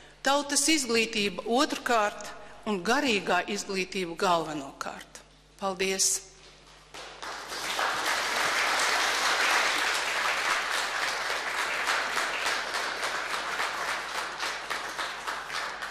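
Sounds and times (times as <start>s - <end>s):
audience applauding: 7.0s - 15.9s.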